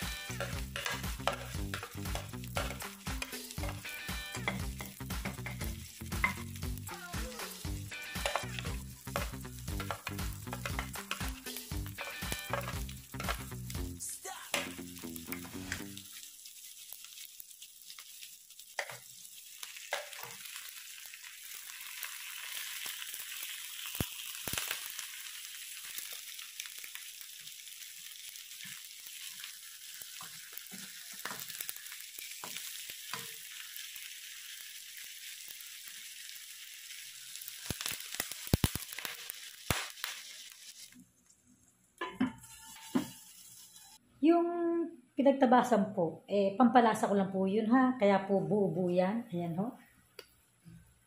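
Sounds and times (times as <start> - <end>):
food sizzling in oil: 0.0 - 41.1, 42.0 - 44.0
plastic spoon stirring in wok: 0.3 - 6.4, 7.3 - 13.6, 14.3 - 20.4
water poured into hot wok: 14.6 - 41.0.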